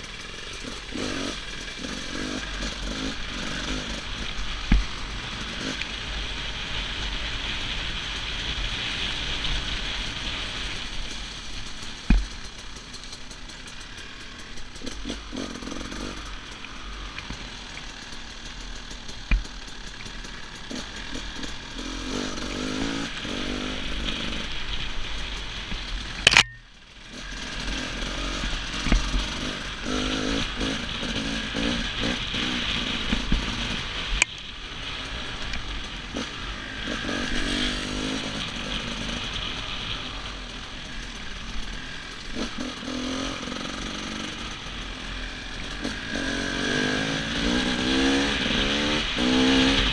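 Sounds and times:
dirt bike engine revving: 0.0s - 7.8s, 12.1s - 49.9s
sharp knocks from bumps: 4.7s - 4.9s
sharp clack: 26.2s - 26.7s.

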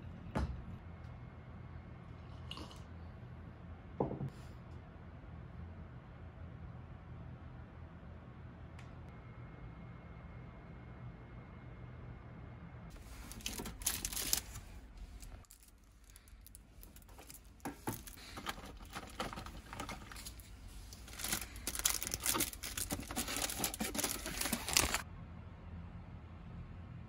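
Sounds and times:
packaging rustling and crinkling: 13.0s - 25.0s.

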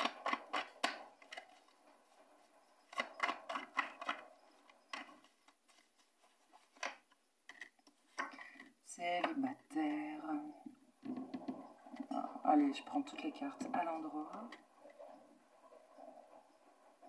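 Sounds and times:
cards clicking and rustling: 4.9s - 8.7s.

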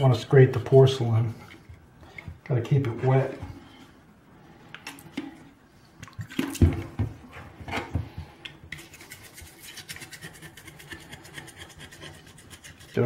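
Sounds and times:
knocks and thumps: 6.3s - 8.3s.

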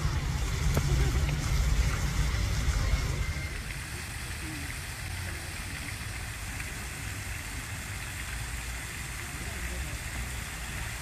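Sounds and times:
low rumble: 0.0s - 3.9s
fountain water splashing into basin: 0.0s - 11.0s.

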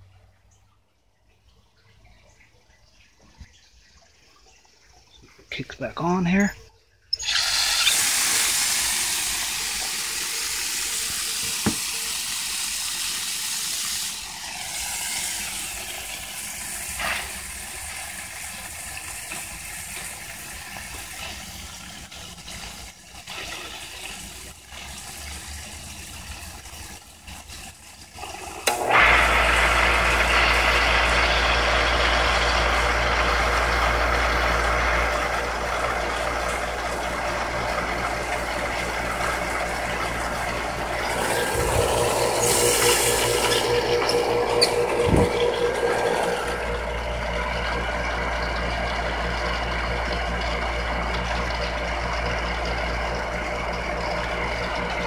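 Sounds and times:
water rushing through pipes: 0.0s - 55.0s
water pump motor humming: 5.2s - 55.0s.

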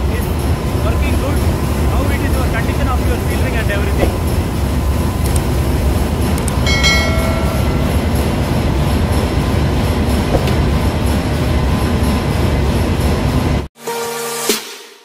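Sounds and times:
engine-room machinery rumble: 0.0s - 13.7s
short chime: 6.7s - 8.4s.

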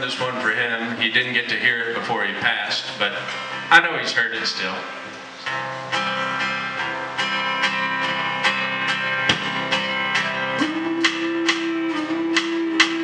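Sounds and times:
acoustic guitars strumming: 0.0s - 13.0s
upright bass: 5.4s - 13.0s
long held note: 9.9s - 13.0s.

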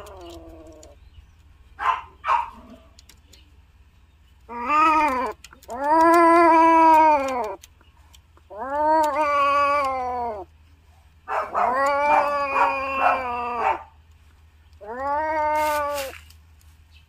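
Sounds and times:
cat yowling: 4.5s - 7.6s, 8.5s - 10.5s, 11.3s - 14.0s, 14.8s - 16.2s.

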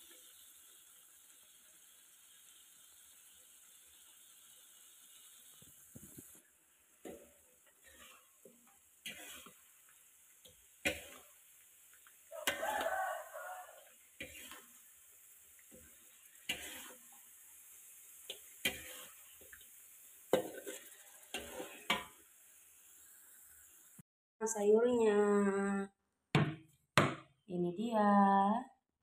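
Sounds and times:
food sizzling in wok: 0.0s - 24.0s
spatula scraping metal wok: 7.0s - 17.5s, 18.2s - 19.6s, 20.3s - 22.2s.

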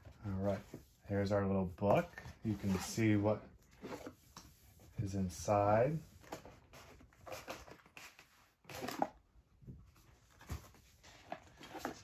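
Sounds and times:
box contents rustling: 6.2s - 12.0s.

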